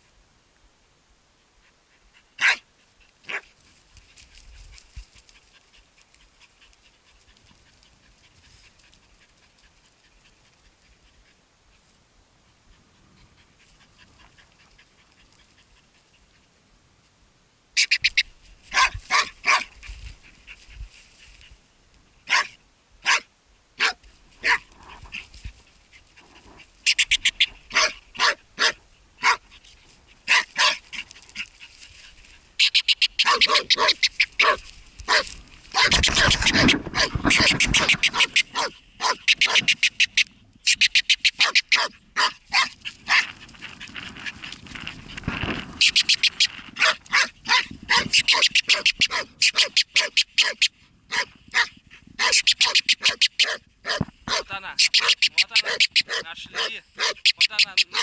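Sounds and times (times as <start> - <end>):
dog barking and yelping: 2.0 - 3.5, 17.8 - 20.7, 22.3 - 25.3, 26.4 - 31.8, 32.4 - 43.6, 45.8 - 58.0.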